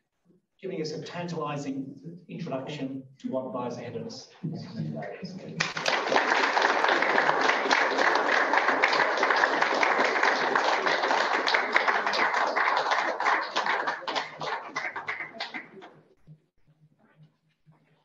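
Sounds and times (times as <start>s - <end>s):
audience applauding: 5.0s - 15.9s.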